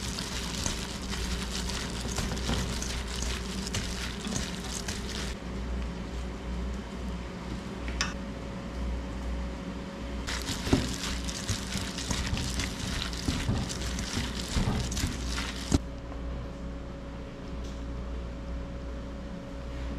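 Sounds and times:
plastic glove crinkling: 0.0s - 5.4s, 10.3s - 15.8s
wet squishing of mushrooms: 0.0s - 5.4s, 10.3s - 15.8s.

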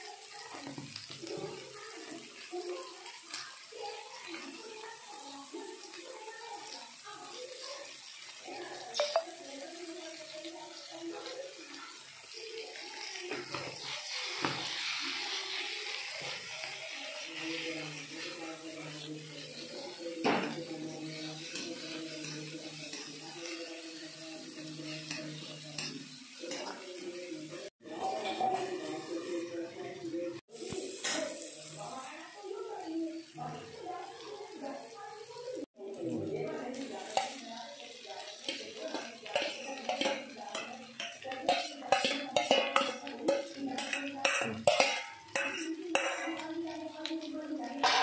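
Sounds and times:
spatula scraping a wok: 11.9s - 20.0s, 37.0s - 46.9s.

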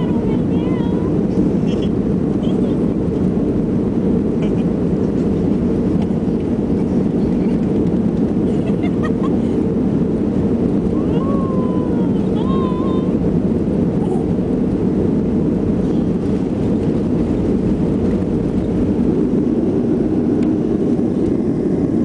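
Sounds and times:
airliner cabin drone: 0.0s - 22.0s.

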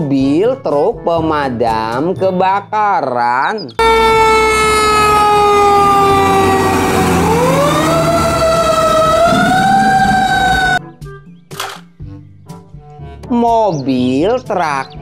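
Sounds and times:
fire truck siren: 3.8s - 10.8s.

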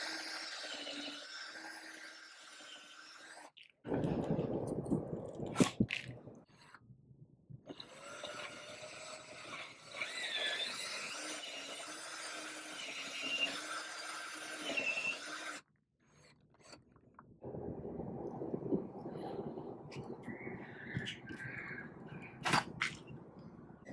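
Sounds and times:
drill grinding into wood: 0.0s - 3.5s, 7.7s - 15.6s.

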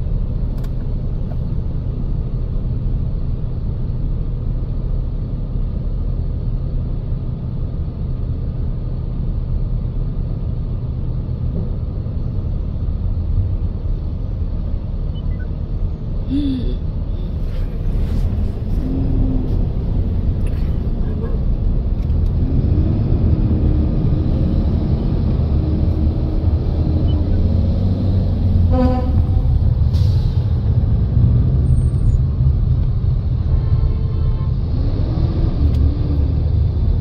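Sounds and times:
car idling rumble from inside: 0.0s - 22.4s.

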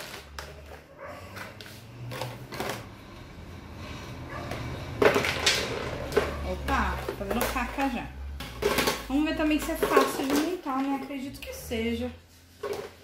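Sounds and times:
plastic tubes clattering together: 0.0s - 2.9s, 4.8s - 11.4s, 12.5s - 13.0s
plastic parts rustling: 0.0s - 3.0s, 4.9s - 11.4s, 12.4s - 13.0s.

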